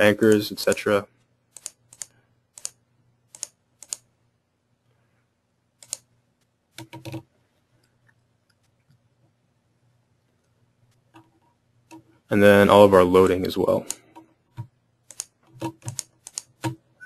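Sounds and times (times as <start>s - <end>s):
faint steady hum: 0.0s - 17.0s
mouse and keyboard clicks: 1.5s - 4.1s, 5.8s - 6.1s, 6.7s - 9.0s, 13.8s - 16.8s.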